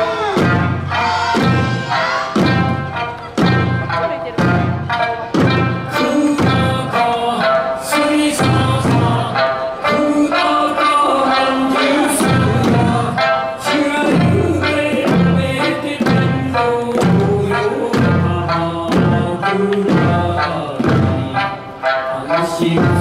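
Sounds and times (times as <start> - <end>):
folk song over loudspeaker: 0.0 - 23.0
taiko drums: 0.0 - 23.0.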